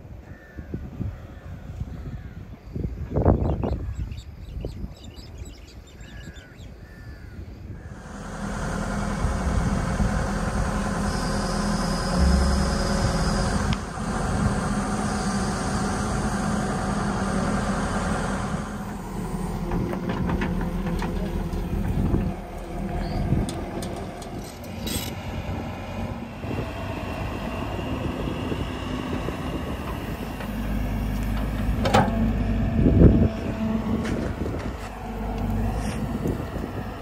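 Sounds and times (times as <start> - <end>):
crows cawing: 0.2 - 2.4
excavator diesel engine: 7.8 - 37.0.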